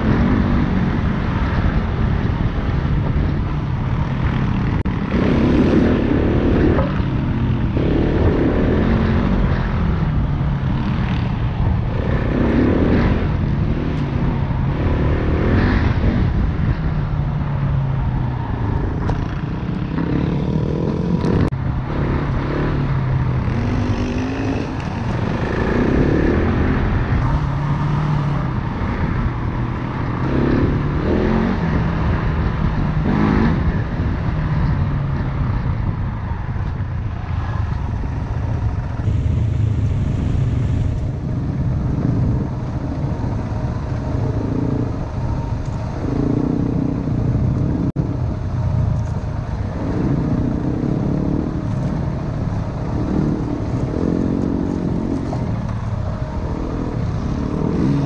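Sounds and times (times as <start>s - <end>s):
dirt bike engine revving: 4.3s - 10.0s, 39.0s - 48.6s, 49.3s - 58.0s.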